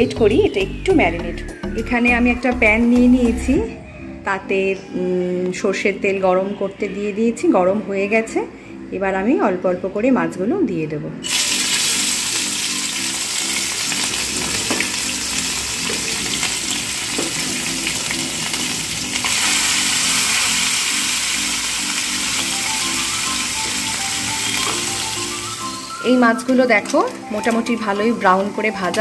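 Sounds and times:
fish sizzling in hot oil: 11.2s - 29.0s.

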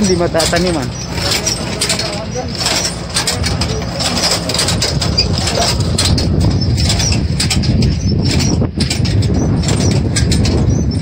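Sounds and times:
tractor engine rumbling: 0.0s - 11.0s.

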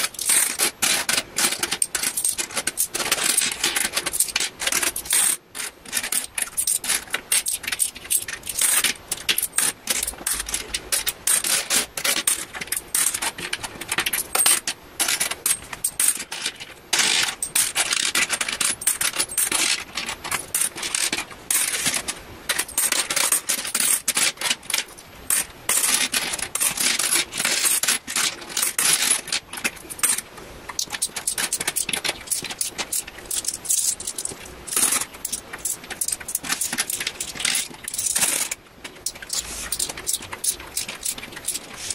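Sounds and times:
coins clinking and sliding: 0.1s - 13.5s, 14.1s - 24.5s, 30.8s - 41.9s.

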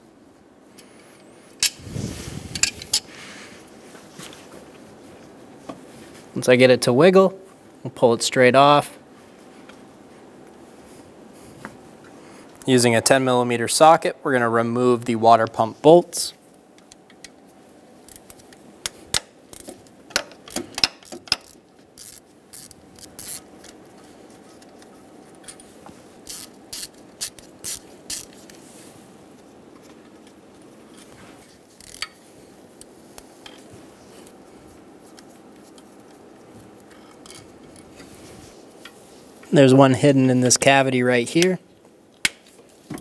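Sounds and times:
ratchet wrench clicking: 20.5s - 23.4s, 26.3s - 28.3s, 31.8s - 32.1s.

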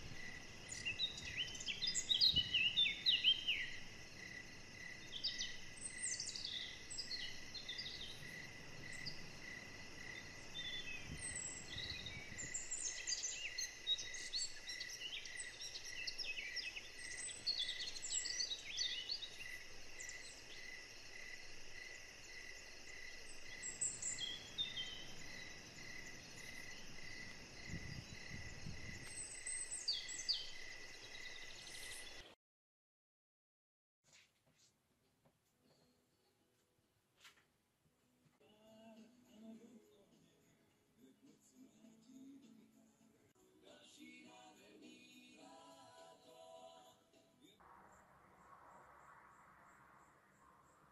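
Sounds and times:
insect chirping in a steady pulse: 0.0s - 32.4s, 47.6s - 50.9s
songbirds chirping: 0.0s - 32.4s, 38.4s - 50.9s.

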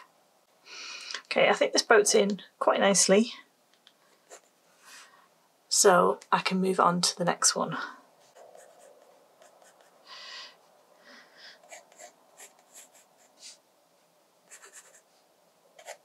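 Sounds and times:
pencil scratching on paper: 8.2s - 10.0s, 11.6s - 13.6s, 14.5s - 15.2s, 15.8s - 16.0s.

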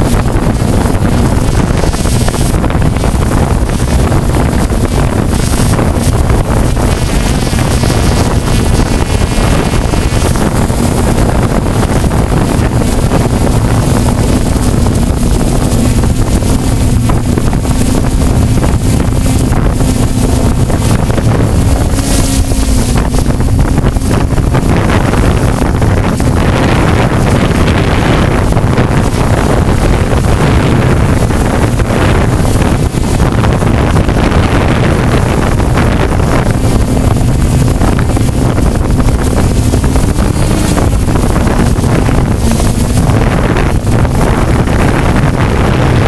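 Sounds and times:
drone propellers droning: 0.0s - 46.0s
faint steady hum: 0.0s - 46.0s
wind buffeting microphone: 0.0s - 46.0s.

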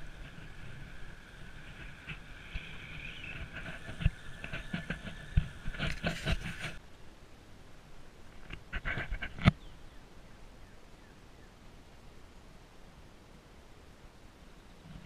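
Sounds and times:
bicycle tyres whirring: 0.0s - 6.8s
outdoor background: 0.0s - 15.0s.

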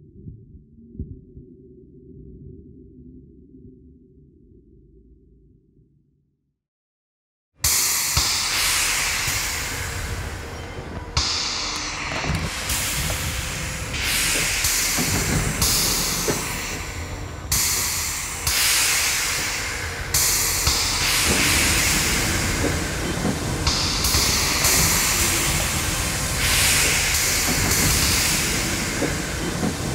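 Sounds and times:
muffled underwater rumble: 0.0s - 5.7s
hiss: 7.7s - 29.9s.

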